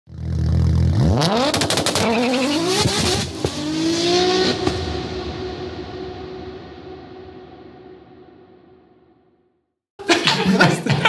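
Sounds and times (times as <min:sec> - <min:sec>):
car engine revving hard: 0:00.4 - 0:06.6.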